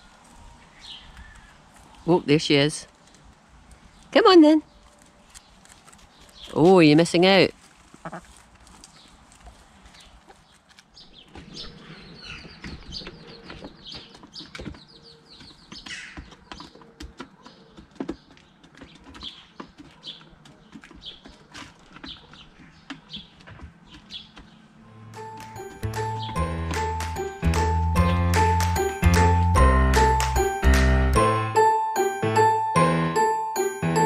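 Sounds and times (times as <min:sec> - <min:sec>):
rustling in grass: 0:01.6 - 0:11.0
hens clucking: 0:07.9 - 0:08.4
high chirps: 0:24.9 - 0:34.0
music: 0:24.9 - 0:34.0.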